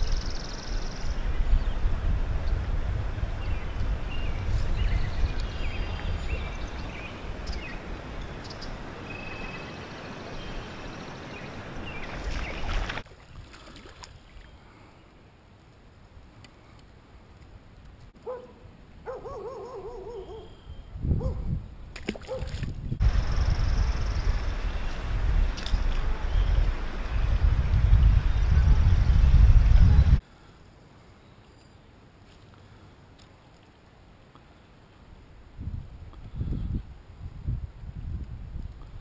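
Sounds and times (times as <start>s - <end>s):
birds chirping: 0.0s - 1.9s, 3.4s - 13.0s, 18.2s - 21.4s, 23.1s - 31.9s
wind rumbling on microphone: 0.0s - 9.6s, 16.1s - 30.2s, 35.2s - 39.0s.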